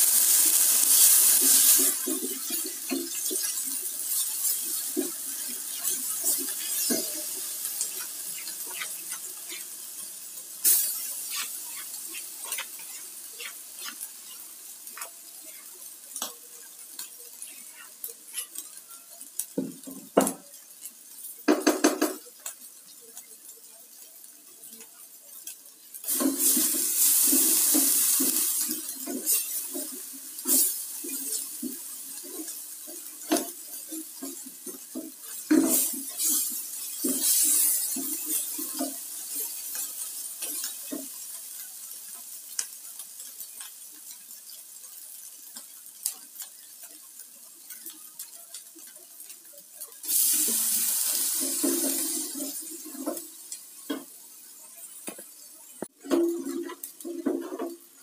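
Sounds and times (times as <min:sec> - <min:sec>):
spatula stirring and scraping: 0:00.0 - 0:19.0, 0:25.4 - 0:41.2, 0:50.0 - 0:54.1
hot oil sizzling in a pot: 0:00.0 - 0:58.0.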